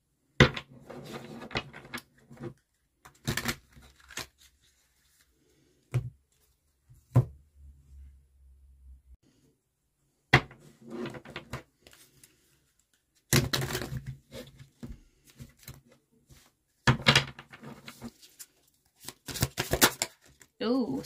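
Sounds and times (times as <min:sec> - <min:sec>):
cards shuffling and rustling: 0:00.9 - 0:05.5, 0:11.0 - 0:20.6.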